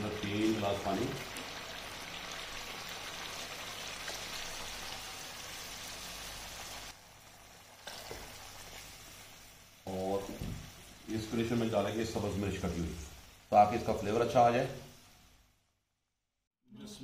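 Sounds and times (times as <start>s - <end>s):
food simmering: 0.0s - 11.5s.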